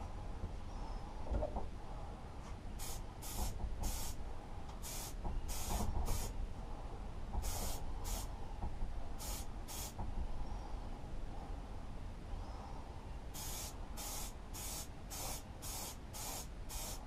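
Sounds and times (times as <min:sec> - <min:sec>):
spray paint can hissing: 0:02.8 - 0:04.2, 0:04.8 - 0:06.3, 0:07.4 - 0:08.3, 0:09.2 - 0:10.0, 0:13.4 - 0:17.0.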